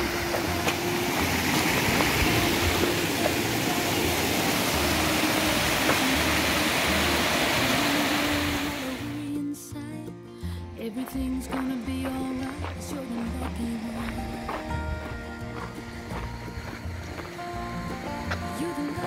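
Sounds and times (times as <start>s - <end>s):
waterfall rushing: 0.0s - 9.2s
soft background music: 0.0s - 19.0s.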